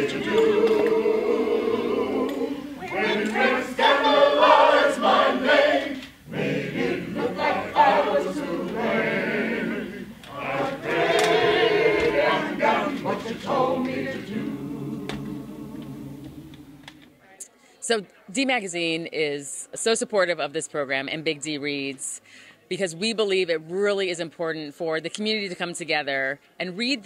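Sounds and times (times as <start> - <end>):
choir singing: 0.0 - 17.2.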